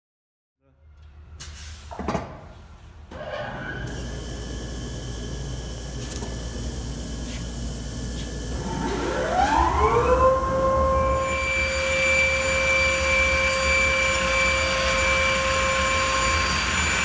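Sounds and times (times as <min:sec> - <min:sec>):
panel saw humming: 0:03.9 - 0:17.0
saw motor whine rising: 0:03.9 - 0:17.0.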